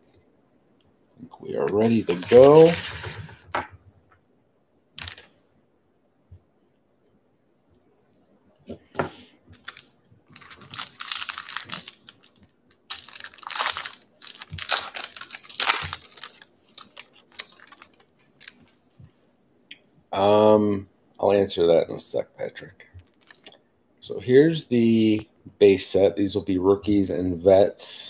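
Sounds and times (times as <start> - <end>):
foil wrapper tearing and crinkling: 5.0 - 5.2, 9.6 - 18.7, 23.0 - 23.6.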